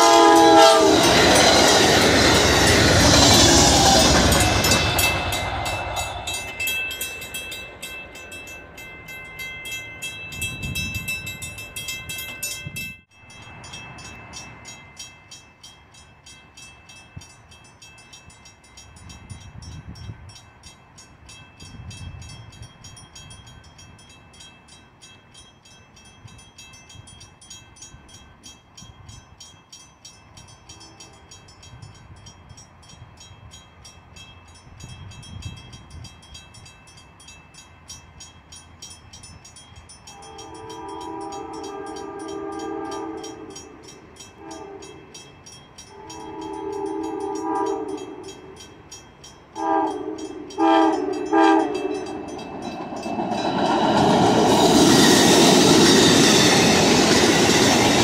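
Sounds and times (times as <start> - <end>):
locomotive horn: 0.0 - 1.7, 40.1 - 43.6, 44.4 - 45.0, 45.9 - 48.2, 49.6 - 52.2
railroad crossing bell ringing: 0.0 - 58.0.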